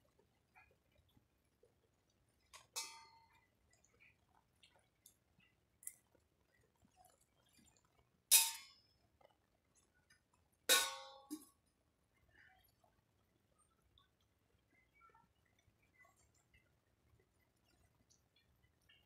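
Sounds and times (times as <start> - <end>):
sharp metallic clanks: 10.7 - 11.4.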